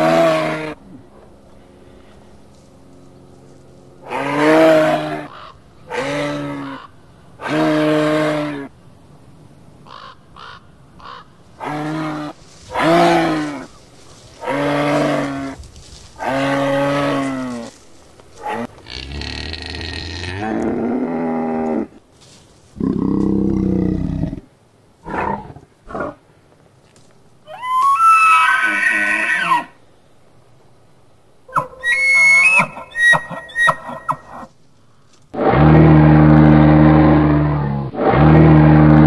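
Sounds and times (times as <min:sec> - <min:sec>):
drawn-out animal calls: 0:00.0 - 0:08.7, 0:09.9 - 0:20.9, 0:31.5 - 0:35.6.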